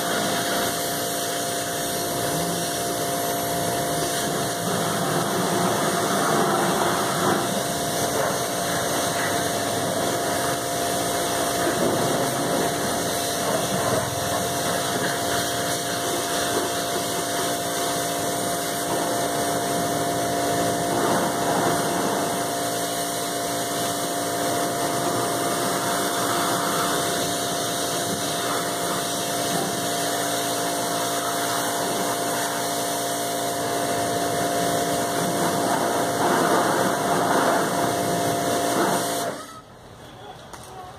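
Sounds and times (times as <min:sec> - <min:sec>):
water jet hissing: 0:00.0 - 0:39.4
pressure washer pump humming: 0:00.0 - 0:39.6.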